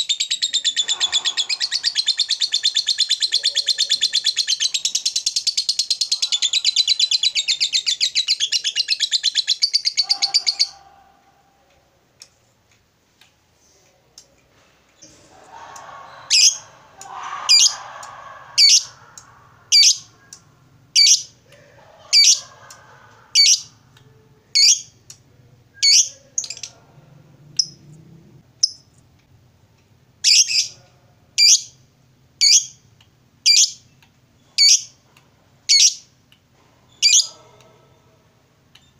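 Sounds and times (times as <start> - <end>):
lovebird chattering trill: 0.0 - 10.8, 19.7 - 20.1, 21.0 - 21.3, 23.4 - 23.7, 24.6 - 24.9, 25.8 - 26.7, 30.2 - 30.8, 31.4 - 31.7, 32.4 - 32.8, 33.5 - 33.8, 34.6 - 34.9, 37.0 - 37.3.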